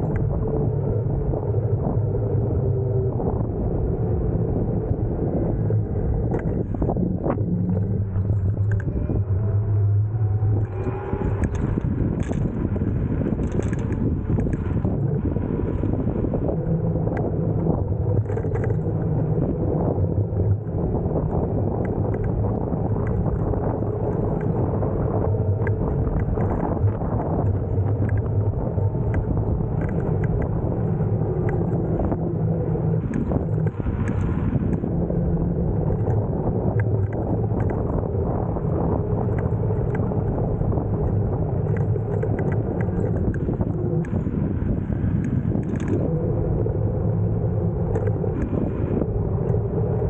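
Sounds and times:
faint low hum: 0.0s - 50.0s
wind rush over microphone: 0.0s - 50.0s
small clicks and rattles: 6.2s - 7.0s, 7.7s - 9.0s, 10.6s - 15.0s, 18.1s - 19.1s, 21.2s - 28.4s, 29.0s - 30.5s, 35.9s - 38.0s, 39.2s - 40.1s, 41.0s - 44.3s, 45.2s - 46.1s, 47.9s - 50.0s.

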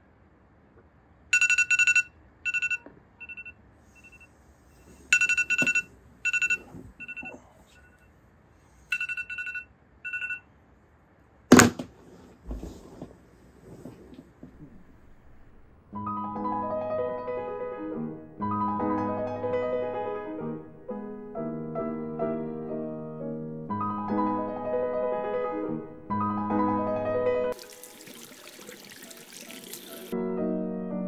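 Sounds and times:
phone alarm beeping: 1.4s - 4.3s, 5.1s - 8.1s, 8.9s - 10.5s.

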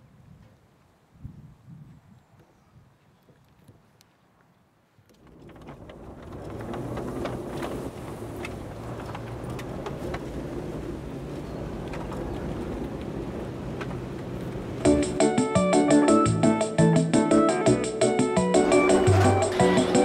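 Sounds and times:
van engine driving on gravel: 5.1s - 15.1s, 18.4s - 20.0s.

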